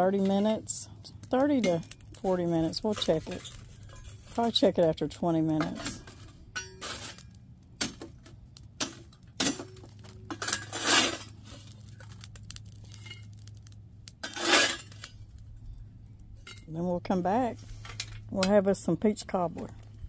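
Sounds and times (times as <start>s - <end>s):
charcoal clinking on metal: 0.0s - 15.5s.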